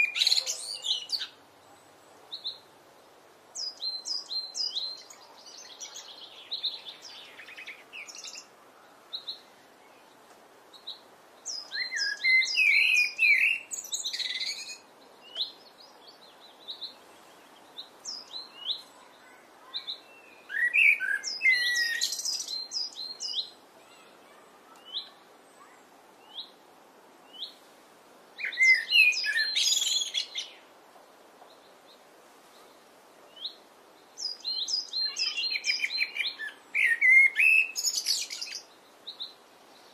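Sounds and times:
blackbird singing: 0.0s - 1.4s, 3.6s - 8.5s, 10.7s - 26.5s, 28.4s - 30.6s, 34.2s - 39.4s.

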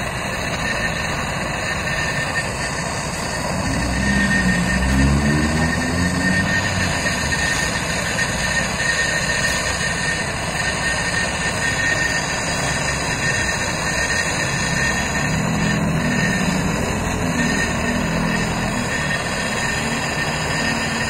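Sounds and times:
gas torch hissing: 0.0s - 21.0s
thin steady whistle: 0.0s - 21.0s.

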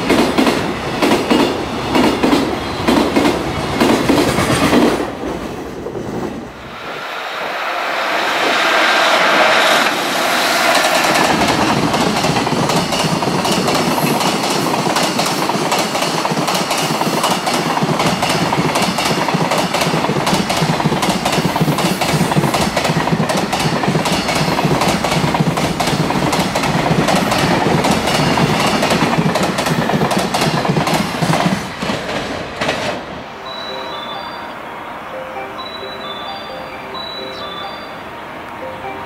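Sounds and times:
train wheels clattering: 0.0s - 6.4s, 8.3s - 33.1s.

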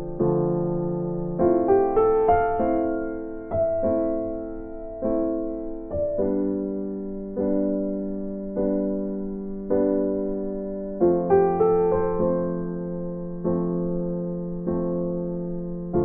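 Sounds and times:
slow soft piano music: 0.0s - 16.0s.

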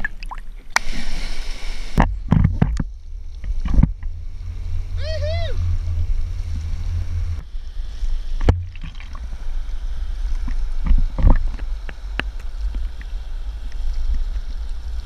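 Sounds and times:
water rush and wind buffeting: 0.0s - 15.0s
board knocks and splashes: 8.4s - 9.2s.

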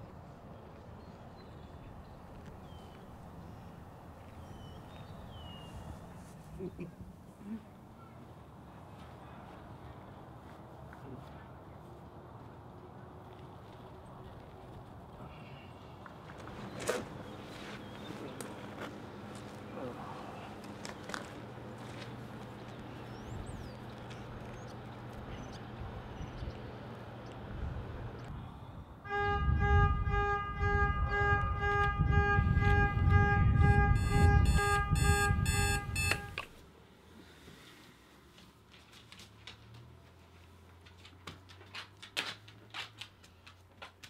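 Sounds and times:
low outdoor hum: 0.0s - 44.0s
alarm clock beeping: 33.9s - 36.4s.

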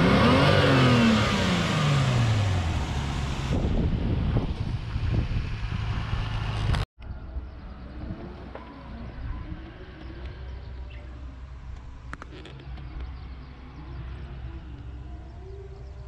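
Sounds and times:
car engine revving and idling: 0.0s - 6.9s.

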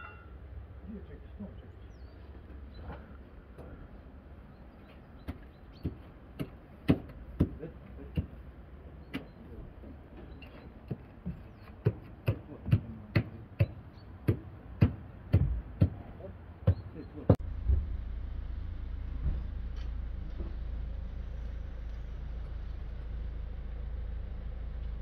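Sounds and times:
footsteps on wooden boards: 4.8s - 8.4s, 9.1s - 16.0s
low rumble: 17.4s - 25.0s.

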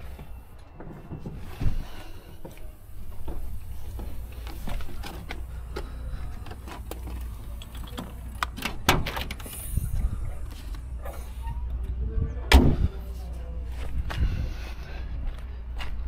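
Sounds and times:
steady low rumble: 1.6s - 16.0s
hatch slamming shut: 12.5s - 12.9s.

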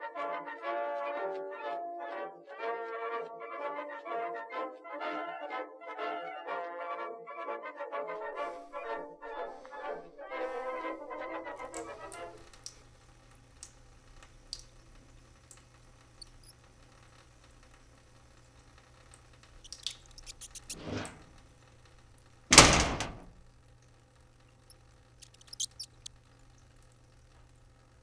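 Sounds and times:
cartoon squeaks: 16.2s - 16.5s, 19.6s - 21.1s, 25.2s - 26.1s.

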